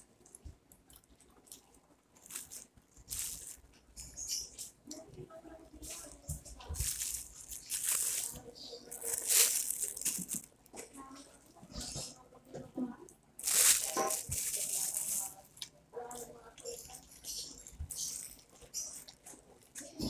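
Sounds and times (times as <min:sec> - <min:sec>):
plastic bag rustling: 0:02.2 - 0:03.8, 0:06.0 - 0:10.9, 0:13.4 - 0:15.4, 0:16.8 - 0:20.0.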